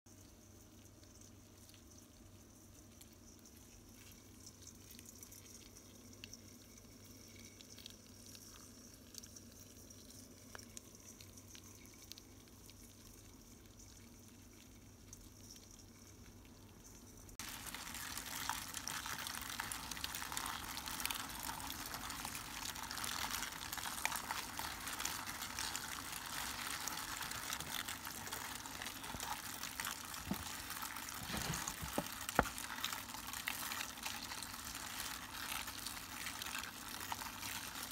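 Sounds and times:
insects crackling over paper bag: 17.4 - 37.9.

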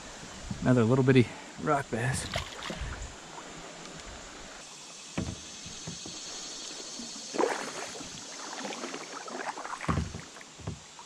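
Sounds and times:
moving water wash: 1.9 - 11.0
paddle strokes splashing: 2.2 - 11.0.

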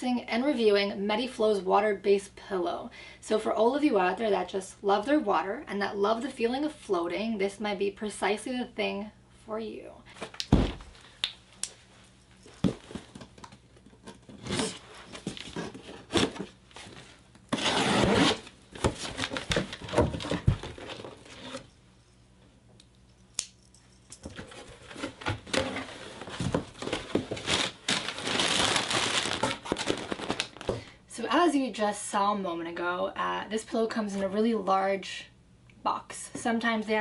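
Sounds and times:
paper and plastic crinkling: 12.6 - 21.6, 24.4 - 30.9
tape tearing: 14.3 - 21.6, 24.4 - 30.8.

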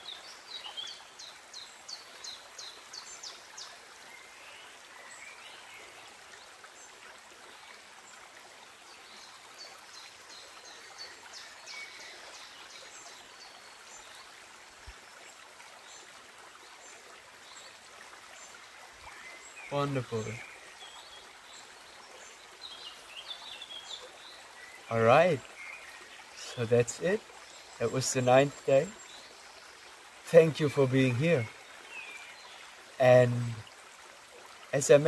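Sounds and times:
birdsong: 0.0 - 7.7, 8.9 - 33.6
forest stream flowing over stones: 0.0 - 35.0.

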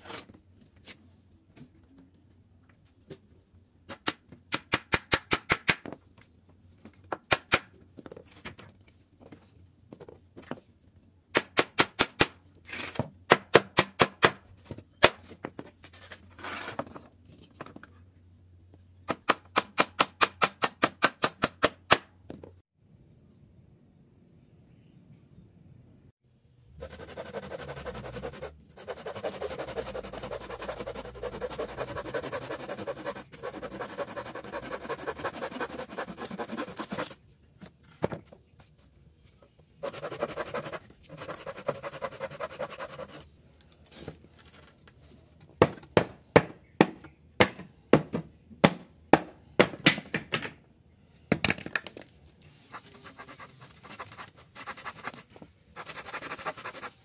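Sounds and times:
hand saw cutting wood: 26.8 - 37.2.

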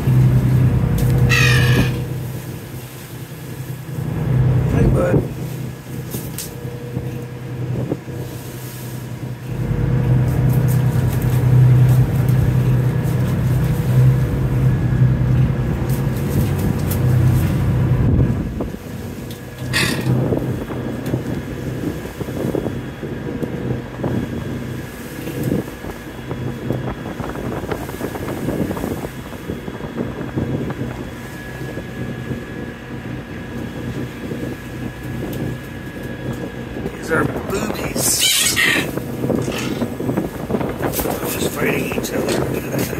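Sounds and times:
boat engine humming: 0.0 - 42.9
high squeak: 1.3 - 2.0, 19.7 - 20.1, 38.2 - 38.9.

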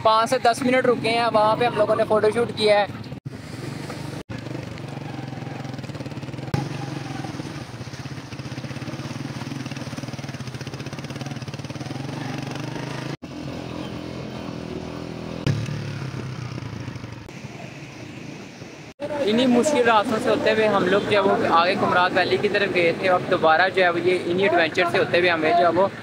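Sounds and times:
motorcycle engine running: 3.9 - 17.6.

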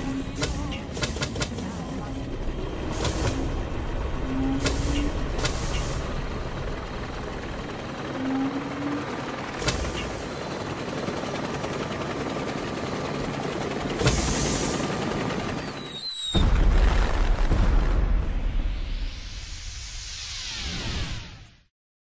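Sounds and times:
engine and rotor din: 0.0 - 16.3.

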